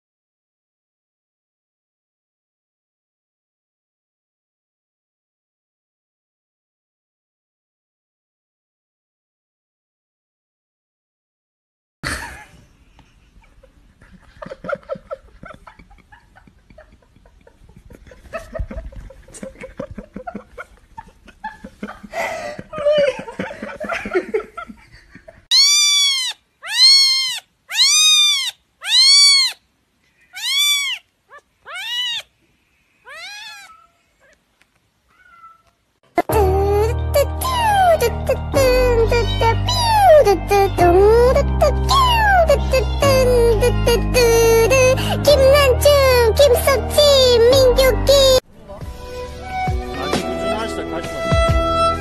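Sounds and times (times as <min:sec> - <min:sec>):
cat meowing: 0:25.5 - 0:29.6, 0:30.3 - 0:32.3, 0:33.0 - 0:34.4, 0:35.1 - 0:35.8.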